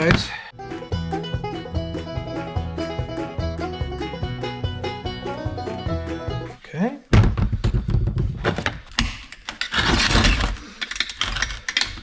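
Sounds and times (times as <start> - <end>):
metal and plastic parts knocking: 7.1 - 12.0.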